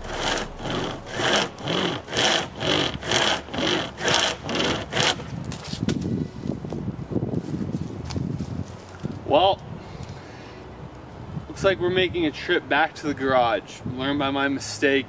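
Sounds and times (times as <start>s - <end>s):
chainsaw chain rasping into wood: 0.0s - 5.3s
scuffing and rustling: 5.3s - 9.2s.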